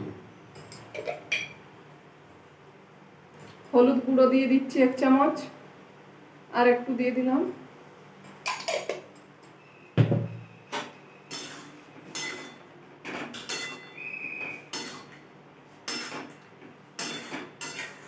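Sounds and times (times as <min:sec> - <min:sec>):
high squeak of metal: 0:13.5 - 0:14.8
metal spatula scraping pan: 0:17.0 - 0:18.0.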